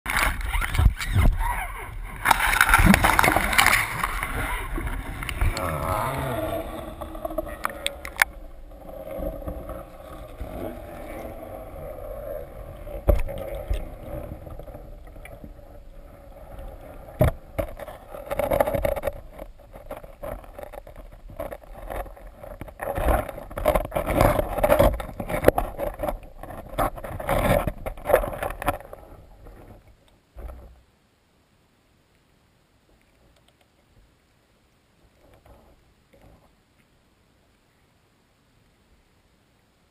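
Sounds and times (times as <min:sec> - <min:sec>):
moving water murmur: 0:00.1 - 0:30.9
underwater clicks and knocks: 0:02.1 - 0:08.4, 0:12.9 - 0:15.5, 0:17.1 - 0:29.8.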